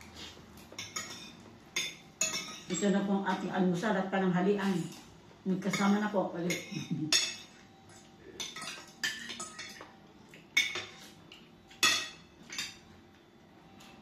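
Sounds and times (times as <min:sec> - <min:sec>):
cutlery clinking on glass plates: 0:00.6 - 0:03.5, 0:05.7 - 0:12.9.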